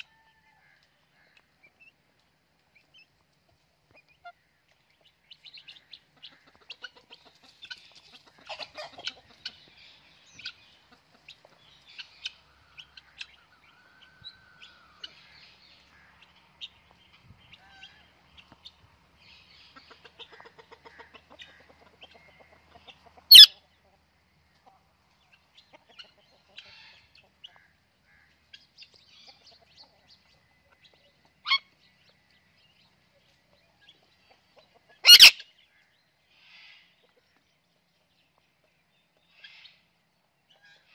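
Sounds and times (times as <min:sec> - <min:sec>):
sharp parakeet calls: 0:23.3 - 0:23.5, 0:35.0 - 0:35.4
parakeets clicking and chirping: 0:35.1 - 0:35.3.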